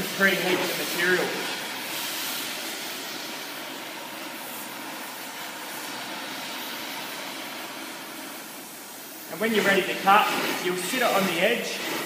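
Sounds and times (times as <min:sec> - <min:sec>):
cutting torch flame hissing: 0:00.0 - 0:12.0.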